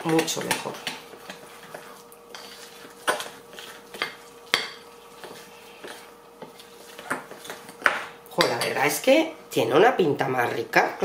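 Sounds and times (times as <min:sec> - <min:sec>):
fork stirring batter in glass bowl: 0:00.1 - 0:08.8.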